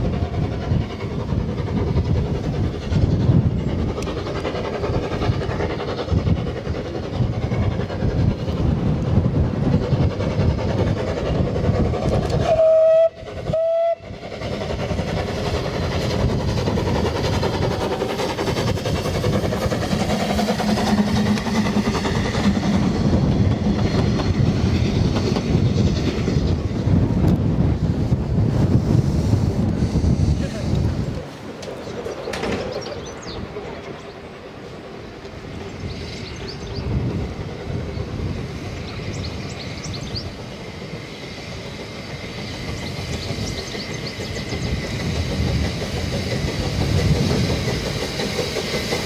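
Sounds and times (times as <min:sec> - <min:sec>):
wind on microphone: 0:00.0 - 0:31.3, 0:35.5 - 0:48.4
steam locomotive running past: 0:00.0 - 0:49.0
steam whistle toots: 0:12.3 - 0:14.2.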